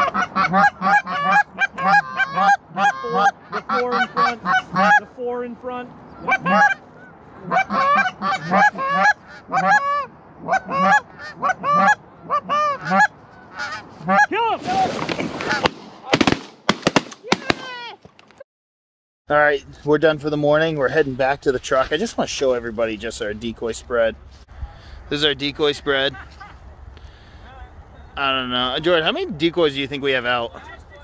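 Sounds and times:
geese honking: 0.0s - 14.4s
sharp cracks: 14.6s - 18.4s.

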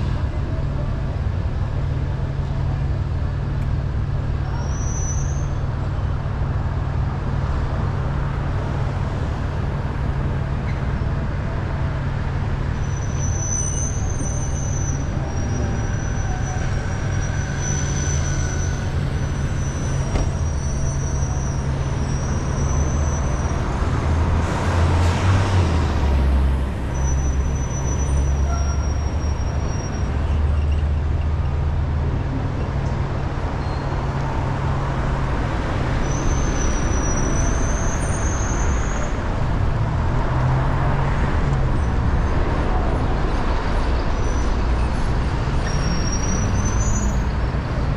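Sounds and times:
car engine and road noise: 0.0s - 47.9s
faint high squeal: 4.5s - 5.6s, 12.8s - 23.6s, 26.9s - 30.9s, 33.6s - 34.0s, 36.0s - 39.1s.

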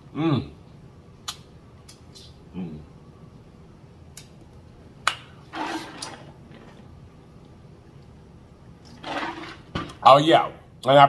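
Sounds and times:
person humming: 2.5s - 2.9s.

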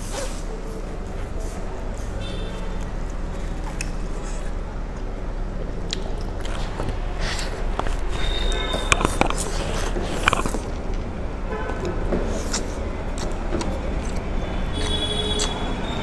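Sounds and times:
road traffic: 0.0s - 16.0s
slurping noodles: 6.3s - 10.8s, 12.2s - 13.4s
car horn toots: 14.7s - 16.0s.

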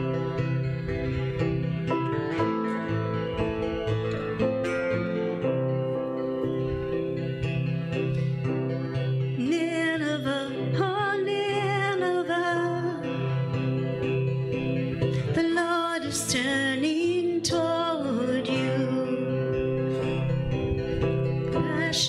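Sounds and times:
instrumental accompaniment: 0.0s - 22.0s
person singing with vibrato: 9.3s - 13.5s, 15.2s - 20.1s, 21.5s - 22.0s.

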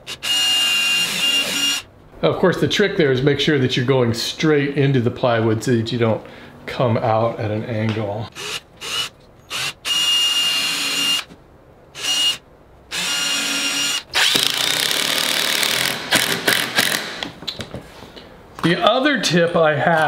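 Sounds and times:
cordless drill whining: 0.0s - 1.9s, 8.4s - 11.3s, 12.0s - 17.1s
drill bit cutting into wood: 0.1s - 1.8s, 8.4s - 11.3s, 12.0s - 17.2s.

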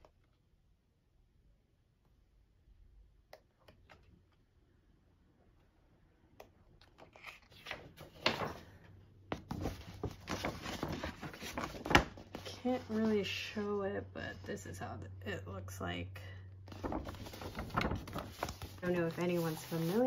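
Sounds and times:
book pages turning: 6.8s - 13.4s, 16.7s - 20.0s.

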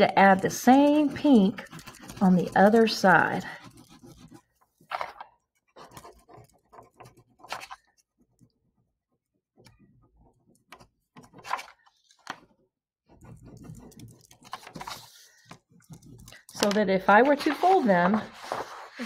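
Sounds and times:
crayon scratching on paper: 0.0s - 8.2s, 13.1s - 19.0s.

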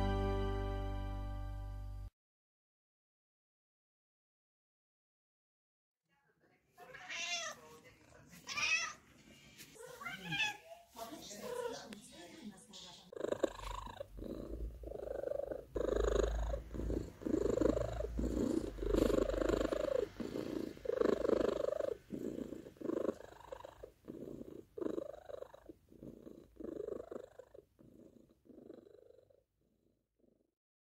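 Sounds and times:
cat purring: 6.9s - 30.6s.

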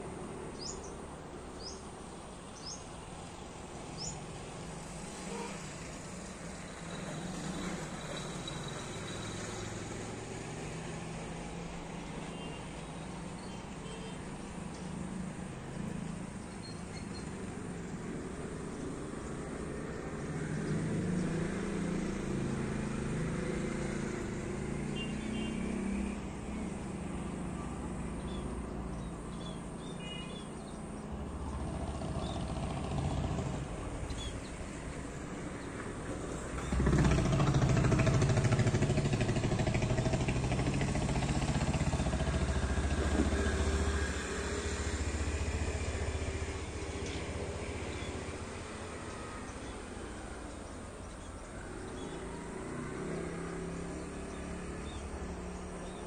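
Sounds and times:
vehicle engine noise: 0.0s - 30.0s, 30.6s - 56.0s
vehicle passing close: 17.2s - 29.9s, 31.2s - 56.0s.

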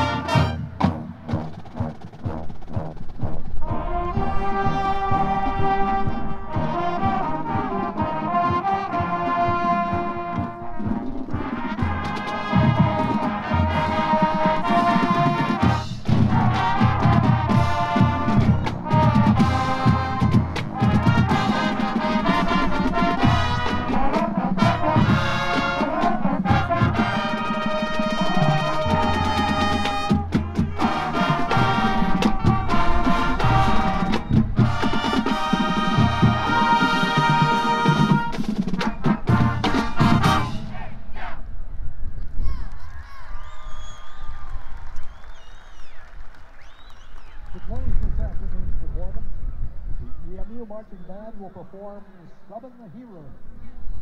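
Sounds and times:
marching band playing: 0.0s - 41.2s
bass drums: 9.0s - 40.7s.

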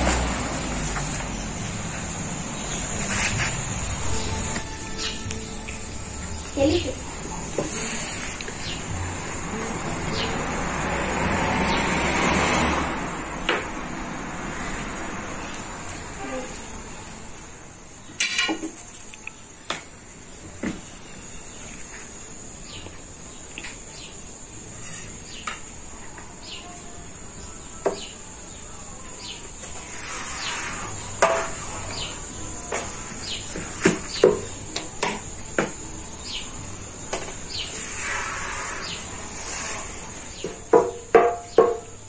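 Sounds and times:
insect drone: 0.0s - 42.0s
insect chirps and clicks: 18.0s - 20.0s, 21.6s - 26.8s, 29.2s - 39.7s
wooden rod knocking on griddle: 31.2s - 31.7s, 40.4s - 42.0s.

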